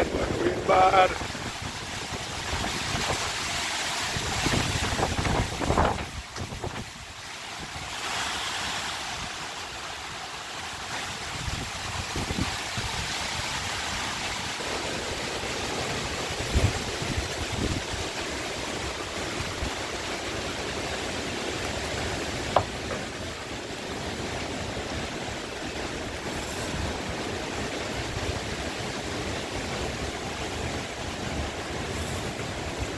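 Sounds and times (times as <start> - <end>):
wind buffeting microphone: 0.0 - 7.9, 11.1 - 21.2
strong wind through trees: 0.0 - 32.9.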